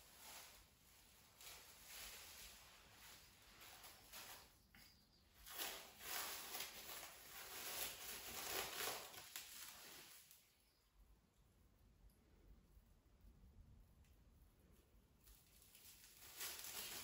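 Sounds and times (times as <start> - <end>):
cling film rustling and crinkling: 0.0 - 10.6, 15.2 - 17.0.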